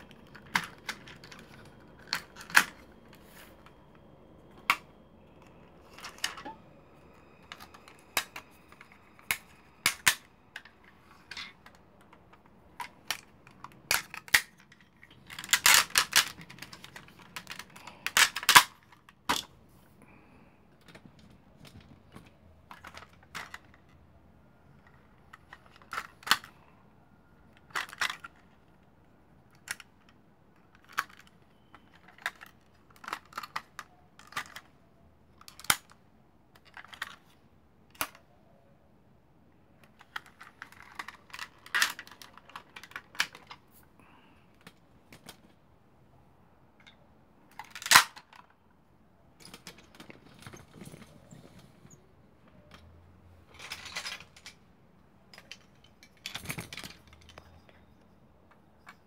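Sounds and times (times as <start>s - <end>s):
plastic toy parts clicking: 0.0s - 3.7s, 4.5s - 6.6s, 7.4s - 19.5s, 20.8s - 24.0s, 24.8s - 26.6s, 27.4s - 28.9s, 29.5s - 34.8s, 35.4s - 38.3s, 39.8s - 43.6s, 46.8s - 48.6s.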